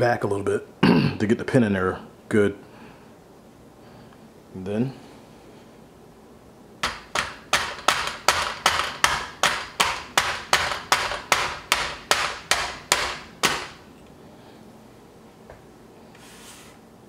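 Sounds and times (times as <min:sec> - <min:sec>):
rubber mallet tapping metal pin: 0:06.8 - 0:13.7.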